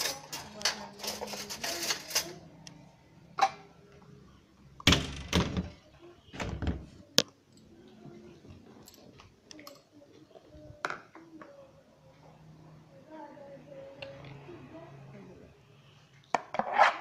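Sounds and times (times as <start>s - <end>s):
door thunks and clatter: 4.8s - 5.8s, 6.4s - 6.9s.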